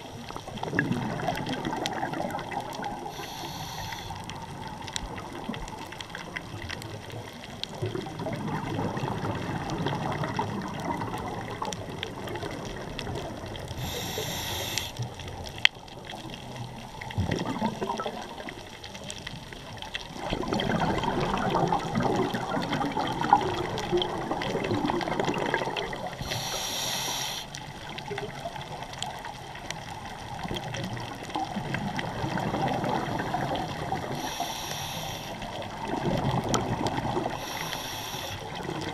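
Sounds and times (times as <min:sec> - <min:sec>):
bubbling scuba exhalation: 0:00.0 - 0:05.4, 0:20.2 - 0:27.5, 0:31.4 - 0:38.9
regulator inhalation hiss: 0:03.0 - 0:04.3, 0:13.8 - 0:15.1, 0:26.2 - 0:27.6, 0:34.2 - 0:35.6, 0:37.3 - 0:38.6.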